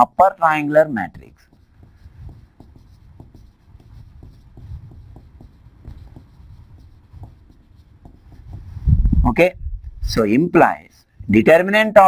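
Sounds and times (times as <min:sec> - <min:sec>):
marker pen writing on whiteboard: 0:00.0 - 0:09.6.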